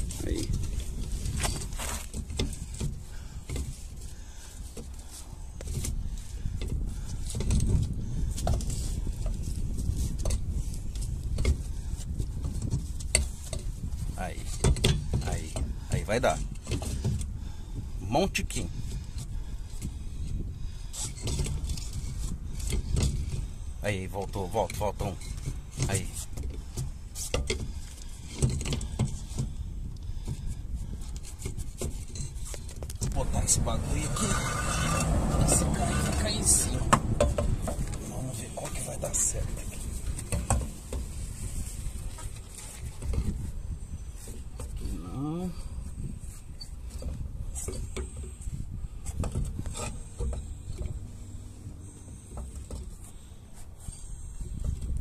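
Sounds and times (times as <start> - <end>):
low steady rumble: 25.1 - 55.0
metal plate knocking and scraping: 33.0 - 38.0
low handling rumble: 33.0 - 46.3.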